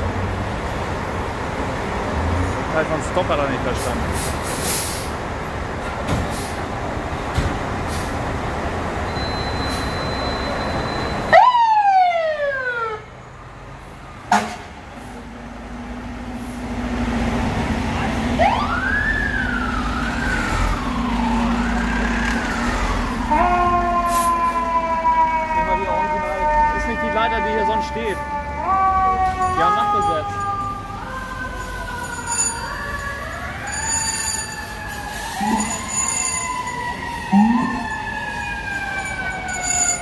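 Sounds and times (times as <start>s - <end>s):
diesel engines running: 0.0s - 11.4s, 12.8s - 40.0s
street noise: 0.0s - 40.0s
siren wailing: 10.4s - 13.1s, 18.0s - 40.0s
siren blast dropping in pitch: 18.3s - 40.0s.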